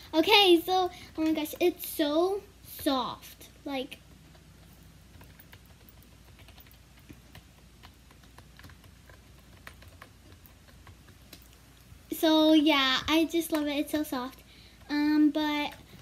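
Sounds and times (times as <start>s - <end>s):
faint keyboard typing clicks: 2.6s - 11.9s, 13.0s - 16.0s.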